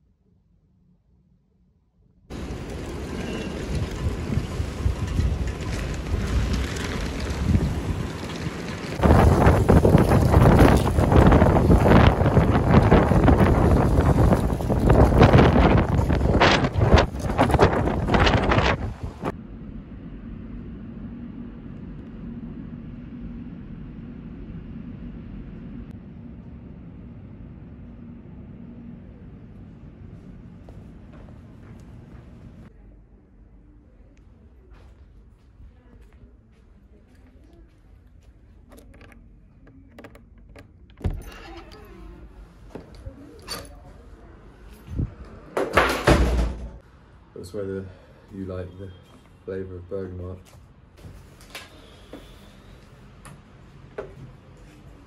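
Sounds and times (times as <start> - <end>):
low hum: 0.0 - 45.5
wind buffeting microphone: 2.3 - 19.4, 44.8 - 45.3.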